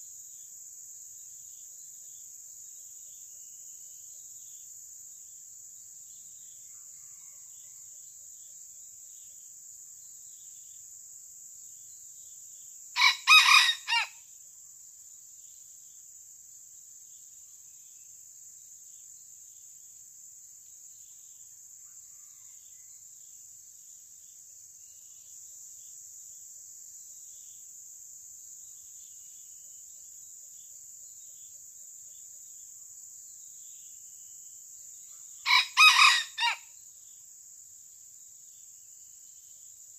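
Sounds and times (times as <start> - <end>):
insects droning: 0.0 - 39.9
rooster crowing: 6.9 - 7.8, 13.0 - 14.2, 35.4 - 36.7.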